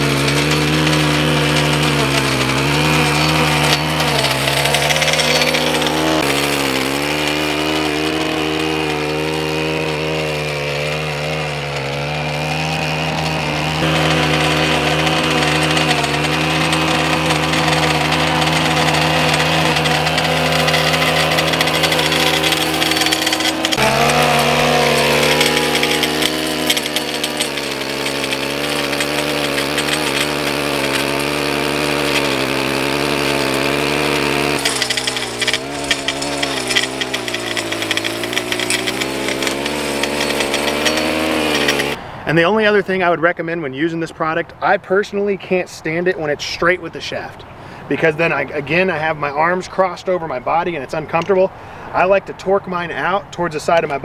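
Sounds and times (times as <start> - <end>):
edger engine at high throttle: 0.0 - 42.0.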